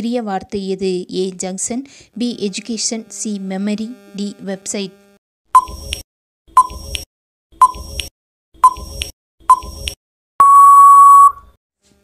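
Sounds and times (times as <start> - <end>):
electronic tick-beep: 6.6 - 7.0, 7.6 - 11.5.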